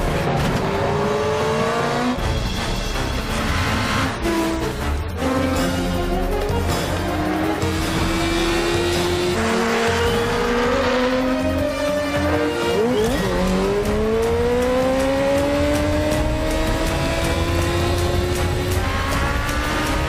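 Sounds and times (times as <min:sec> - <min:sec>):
background music: 0:00.0 - 0:20.0
motorcycle engine revving: 0:06.7 - 0:20.0.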